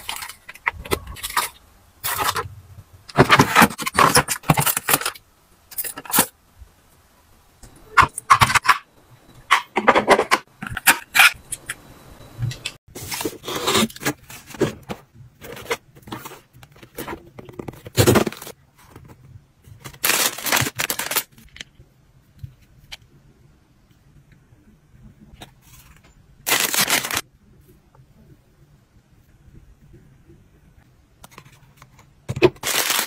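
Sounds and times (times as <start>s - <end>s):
cardboard packaging rustling: 13.0s - 19.1s, 19.8s - 21.6s, 26.5s - 27.2s, 32.4s - 33.0s.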